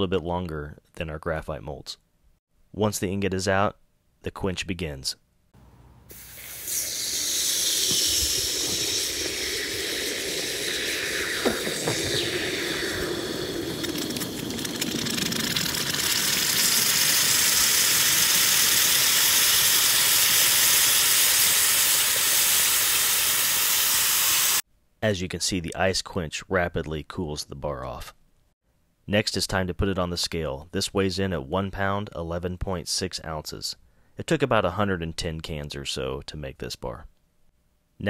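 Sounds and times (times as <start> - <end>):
hot metal hissing in ice: 6.1 - 24.6
steam hissing: 6.1 - 24.6
sharp crack: 6.2 - 19.9.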